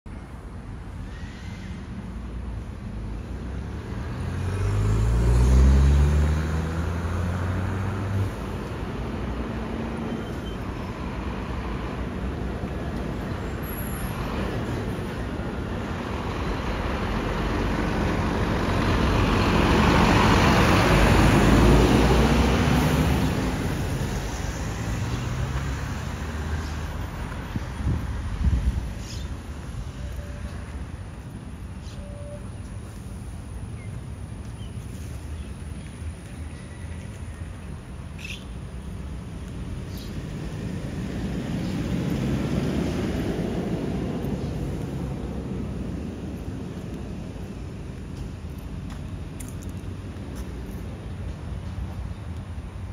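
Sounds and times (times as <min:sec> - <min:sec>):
diesel lorry driving past: 0:03.5 - 0:33.6.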